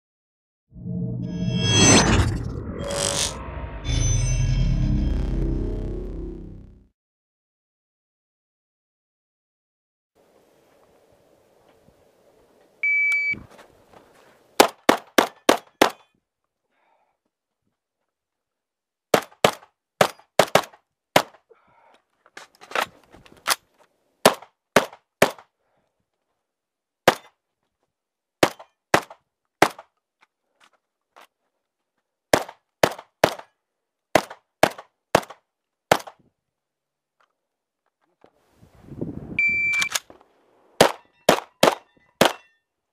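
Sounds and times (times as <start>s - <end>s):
shot timer beep: 39.4s - 40.0s.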